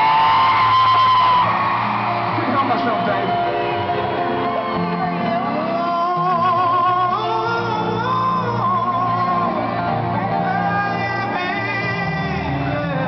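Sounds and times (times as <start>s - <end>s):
man singing with vibrato: 5.1s - 13.0s.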